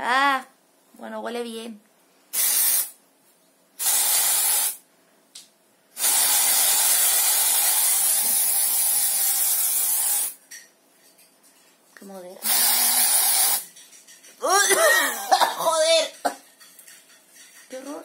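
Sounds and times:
aerosol can spraying: 0:02.3 - 0:03.0, 0:03.8 - 0:04.8, 0:06.0 - 0:10.4, 0:12.4 - 0:13.6.

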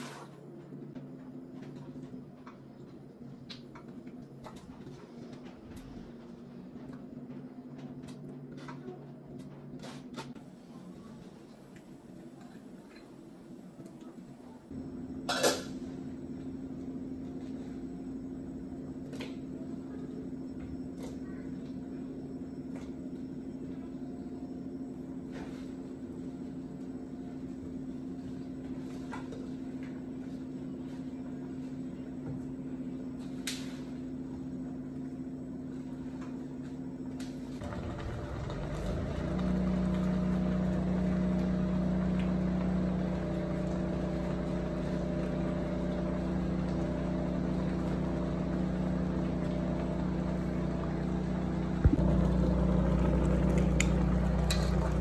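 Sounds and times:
steady machine hum: 0:10.5 - 0:55.0
loud low hum: 0:37.6 - 0:55.0.

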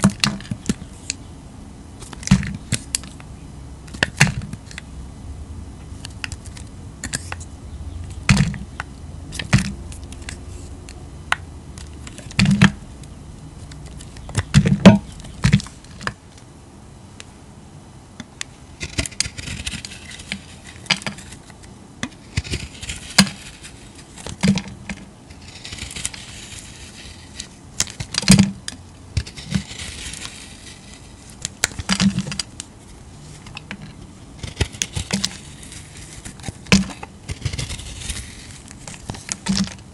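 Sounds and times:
blade scraping soap: 0:22.2 - 0:24.3, 0:25.3 - 0:28.2, 0:29.2 - 0:32.5, 0:34.4 - 0:39.8.

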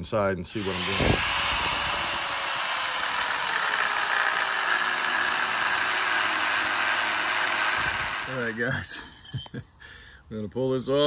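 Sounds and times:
angle grinder cutting metal: 0:00.5 - 0:08.7.

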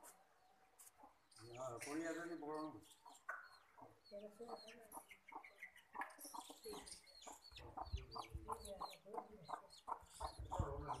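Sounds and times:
chickens clucking: 0:00.1 - 0:11.0.

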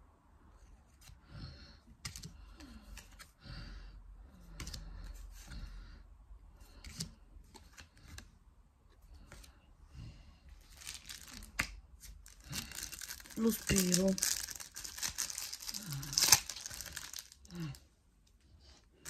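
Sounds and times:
cards rustling: 0:02.0 - 0:03.3, 0:04.4 - 0:05.7, 0:06.6 - 0:08.3, 0:10.6 - 0:17.8.

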